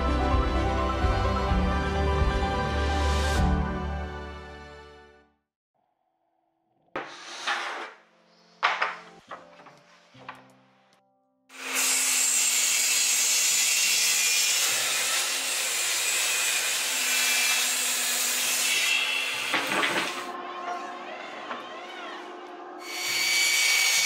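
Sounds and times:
table saw cutting wood: 7.0s - 8.0s, 11.5s - 20.4s, 22.8s - 24.0s.

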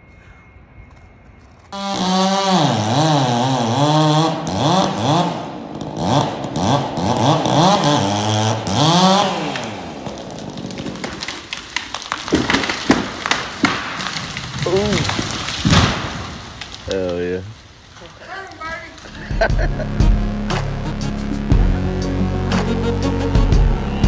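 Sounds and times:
chainsaw revving: 1.8s - 15.7s
wood cracking and snapping: 3.8s - 19.9s.

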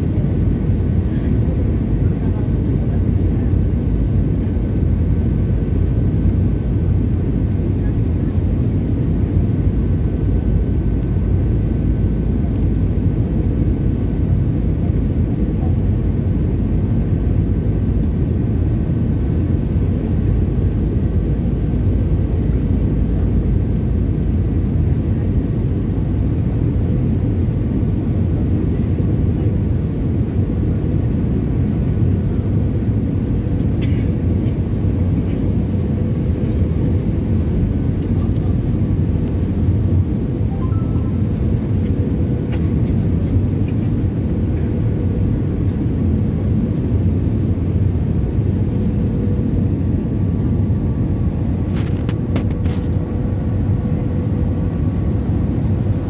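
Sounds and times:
airliner cabin rumble: 0.0s - 56.0s
faint steady whine: 37.1s - 44.4s.

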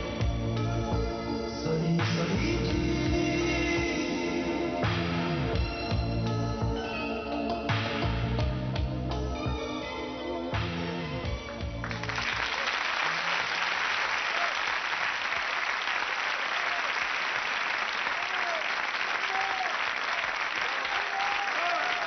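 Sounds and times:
studio audience applauding: 11.4s - 22.0s.

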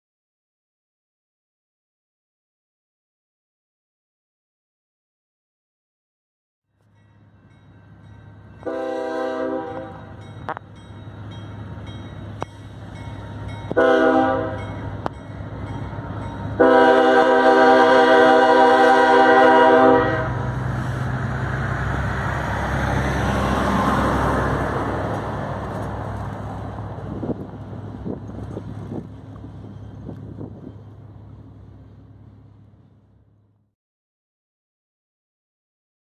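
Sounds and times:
diesel engines humming: 7.9s - 33.6s
locomotive air horn blasts: 8.6s - 10.1s, 13.7s - 14.8s, 16.6s - 20.5s.

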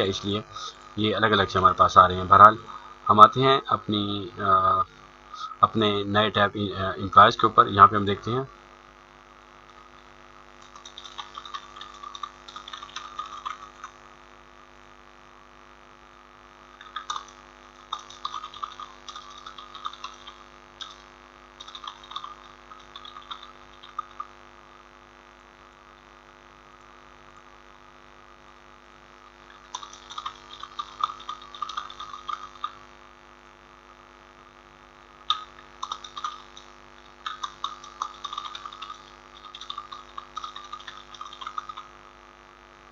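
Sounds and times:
electrical mains hum: 0.0s - 42.9s
keyboard typing: 10.6s - 14.0s, 16.8s - 21.0s, 21.6s - 24.3s, 29.5s - 32.8s, 35.3s - 41.9s.

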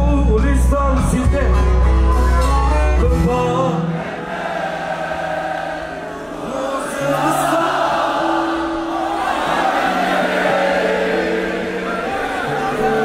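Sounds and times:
live band music: 0.0s - 3.9s
person singing: 6.4s - 13.0s.

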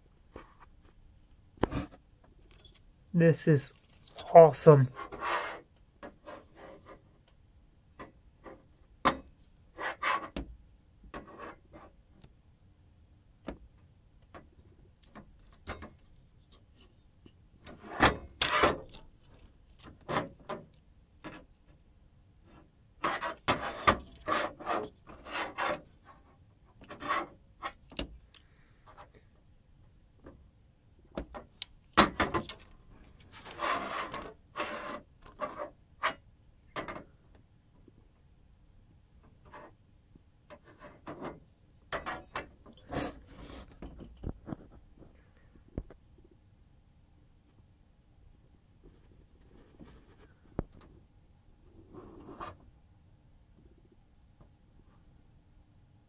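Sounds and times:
handling rubs and scrapes: 3.7s - 7.2s, 22.4s - 27.8s, 32.6s - 36.2s, 42.0s - 45.1s.

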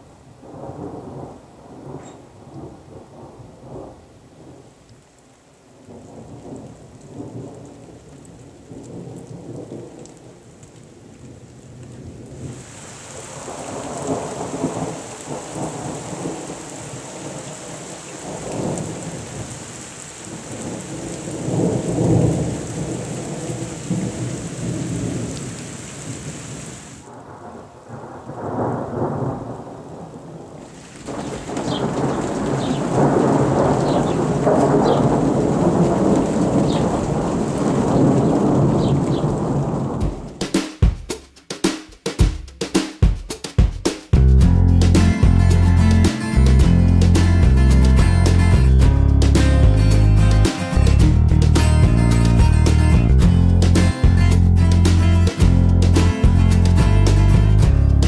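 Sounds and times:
rain falling: 0.0s - 40.6s, 44.1s - 58.0s
thunder rumbling: 0.4s - 4.6s, 5.9s - 10.5s, 11.2s - 26.3s, 27.0s - 40.4s.

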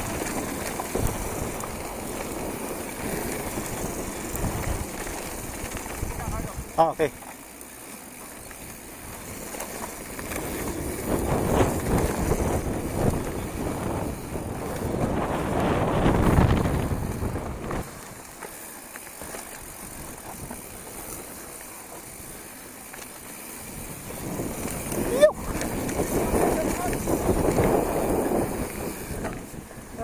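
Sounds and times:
bike rattling over bumps: 0.0s - 30.0s
bike tyres on dirt: 0.0s - 30.0s
wind on microphone: 10.2s - 17.9s, 23.7s - 30.0s.

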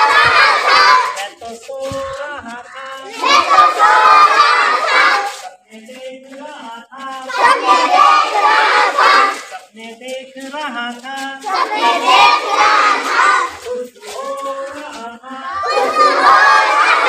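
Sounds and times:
children shouting in unison: 0.0s - 1.2s, 3.1s - 5.4s, 7.3s - 9.5s, 11.5s - 13.6s, 15.5s - 17.0s.

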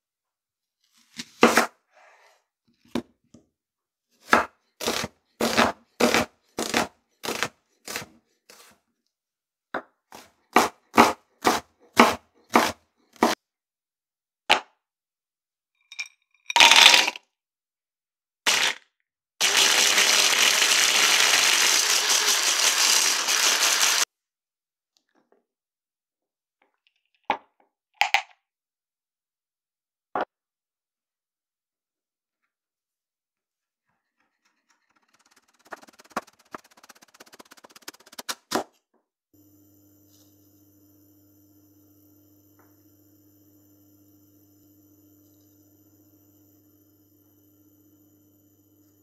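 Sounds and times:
knife chopping on cutting board: 1.3s - 1.7s, 4.2s - 8.8s, 10.2s - 13.4s
electric chopper grinding: 19.4s - 24.0s.

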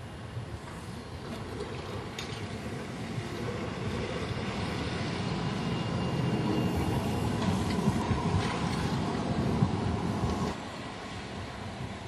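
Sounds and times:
streetcar rumbling past: 0.1s - 12.0s.

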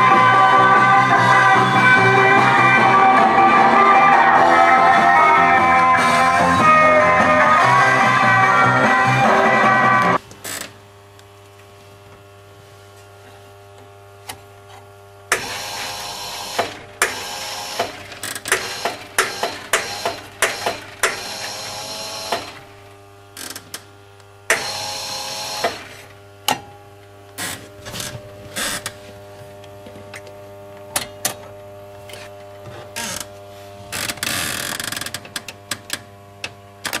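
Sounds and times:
electrical hum: 0.0s - 37.0s
jukebox mechanism whirring: 15.3s - 22.8s, 24.5s - 26.8s.

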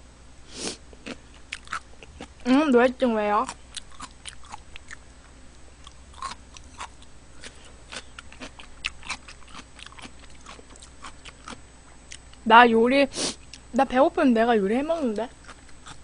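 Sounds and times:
person chewing: 0.9s - 2.4s, 3.4s - 12.4s, 15.4s - 16.0s.

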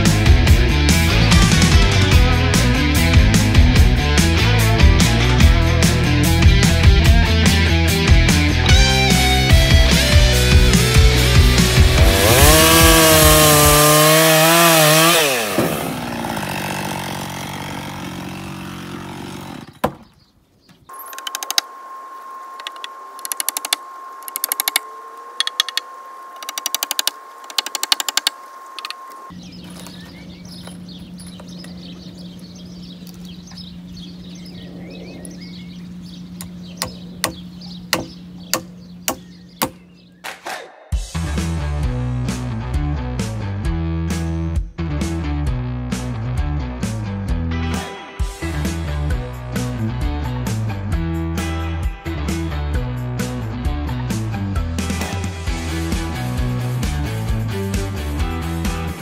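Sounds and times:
distorted rock guitar music: 0.0s - 14.0s, 41.0s - 59.0s
steady hum: 20.9s - 40.0s
hammer driving nails into wood: 36.8s - 40.4s.

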